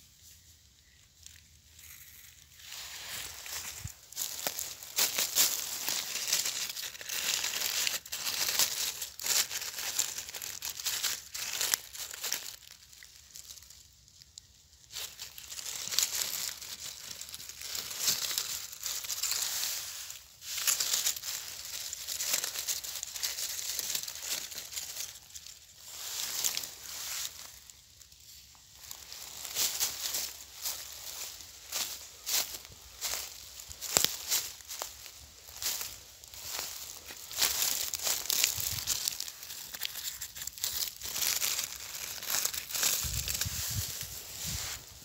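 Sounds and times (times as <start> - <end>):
dry leaves rustling and crackling: 0.0 - 45.0.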